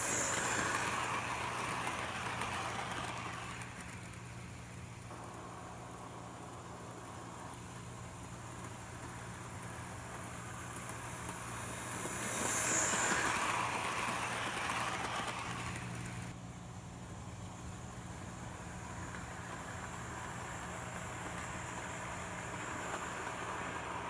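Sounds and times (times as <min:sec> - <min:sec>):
model train motor whirr: 0:00.0 - 0:16.4, 0:17.6 - 0:24.0.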